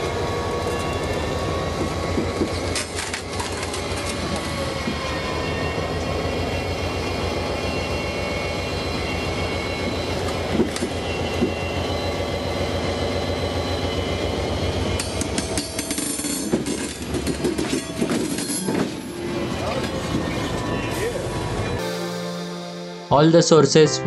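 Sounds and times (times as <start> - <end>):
railcar wheels rolling over steel: 14.8 - 21.6.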